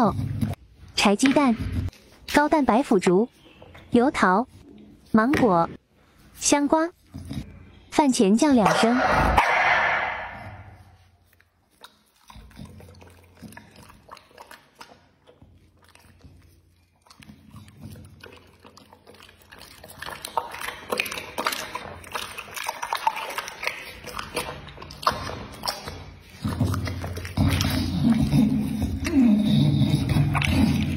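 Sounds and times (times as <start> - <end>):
dog chewing wetly: 11.2 - 29.2.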